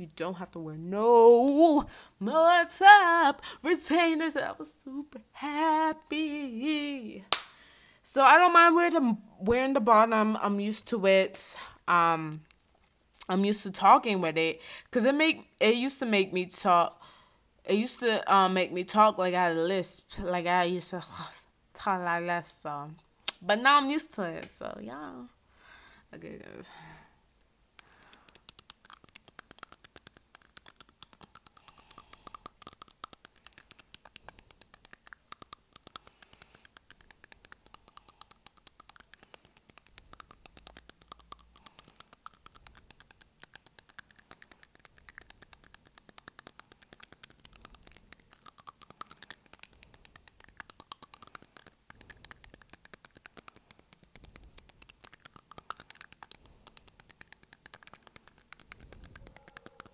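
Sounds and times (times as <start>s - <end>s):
fingernails tapping on teeth: 27.8s - 59.9s.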